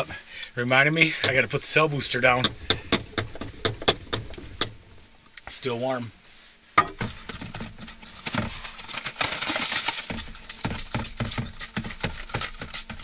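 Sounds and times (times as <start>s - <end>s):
faint steady hum: 0.0s - 12.3s
irregular knocks and clatters: 2.3s - 4.8s.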